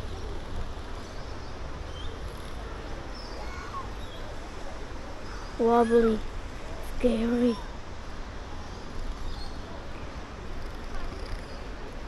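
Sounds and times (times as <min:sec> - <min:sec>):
faint bird chirps: 0:01.0 - 0:02.3.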